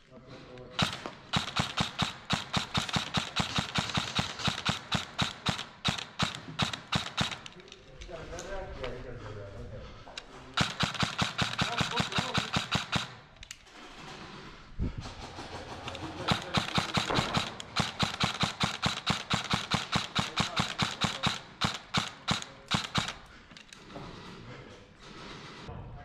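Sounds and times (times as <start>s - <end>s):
airsoft rifles firing rapidly: 0.8s - 7.6s, 10.6s - 13.4s, 15.0s - 23.4s.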